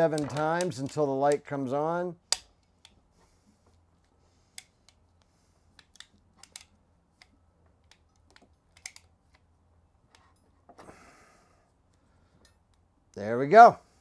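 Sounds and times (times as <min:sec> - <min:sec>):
clamp tool ratchet clicks: 0:00.1 - 0:01.0.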